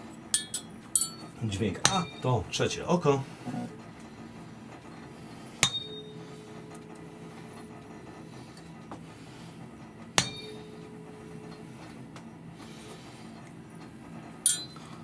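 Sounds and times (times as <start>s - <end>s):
tuning fork ringing: 0.3s - 2.4s, 5.6s - 6.8s, 10.2s - 11.6s, 14.4s - 15.0s.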